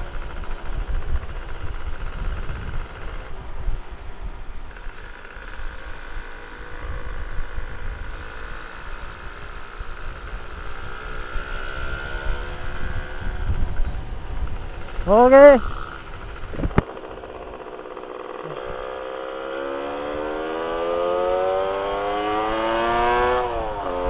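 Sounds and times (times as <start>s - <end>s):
wind rumble on microphone: 0.0s - 16.9s
two-stroke motorcycle engine: 0.0s - 24.0s.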